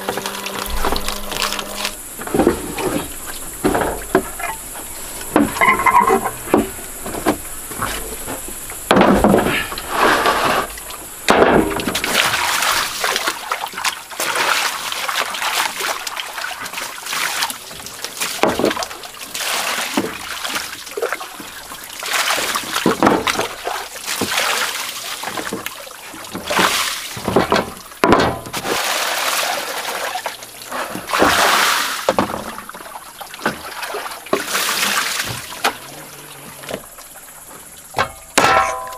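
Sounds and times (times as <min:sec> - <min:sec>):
water splashing and sloshing: 0:00.0 - 0:38.9
high insect shrill: 0:00.1 - 0:02.1, 0:04.3 - 0:08.7.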